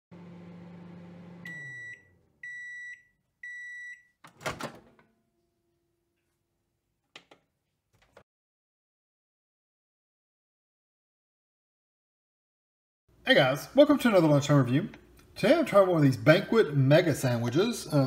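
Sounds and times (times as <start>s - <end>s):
microwave oven humming: 0.1s - 2.8s
microwave beeps: 1.1s - 4.2s.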